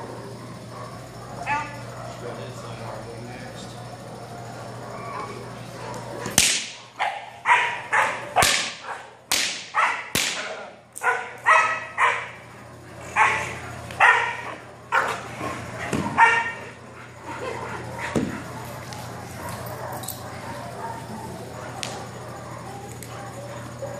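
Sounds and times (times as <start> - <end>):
dog barking: 7.0 - 10.1, 11.0 - 12.4, 13.2 - 15.2, 15.9 - 16.7, 19.4 - 23.9.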